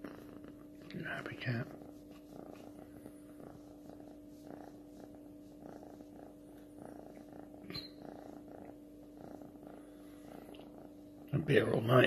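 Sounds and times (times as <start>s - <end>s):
kitten purring: 0.0s - 12.0s.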